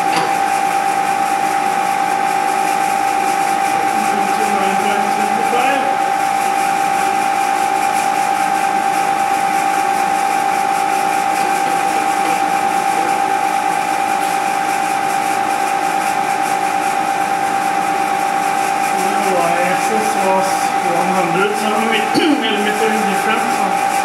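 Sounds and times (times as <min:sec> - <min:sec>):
milling machine spindle whine: 0:00.0 - 0:24.0.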